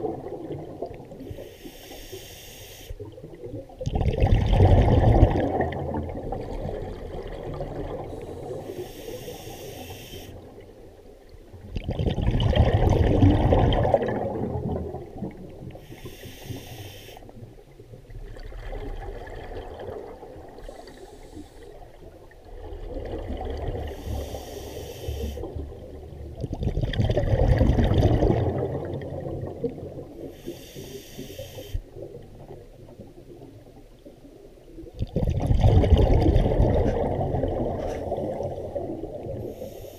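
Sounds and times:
exhaled bubbles rushing: 0:00.0 - 0:01.2, 0:03.0 - 0:08.7, 0:11.6 - 0:15.8, 0:18.1 - 0:20.6, 0:22.1 - 0:24.0, 0:25.4 - 0:30.3, 0:34.8 - 0:39.4
regulator inhalation hiss: 0:01.3 - 0:03.0, 0:08.2 - 0:10.4, 0:15.8 - 0:17.4, 0:20.6 - 0:21.9, 0:23.9 - 0:25.5, 0:30.3 - 0:31.9, 0:39.4 - 0:39.9.

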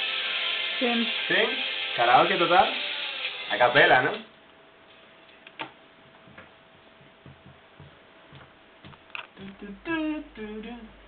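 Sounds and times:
faint steady hum: 0:03.9 - 0:11.0.

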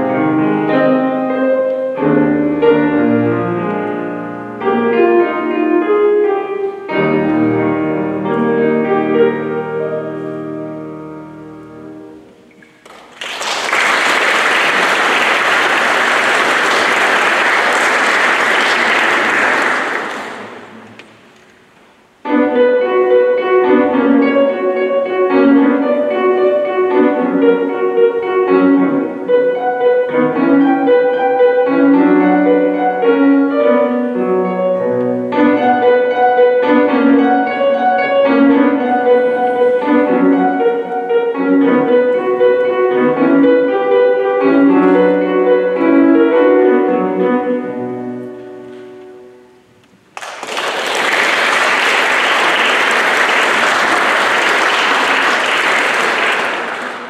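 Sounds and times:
fast piano piece: 0:00.0 - 0:12.2, 0:22.2 - 0:49.4, 0:50.2 - 0:57.0
piano chords: 0:00.0 - 0:57.0
audience applause: 0:12.8 - 0:21.1, 0:50.2 - 0:57.0.

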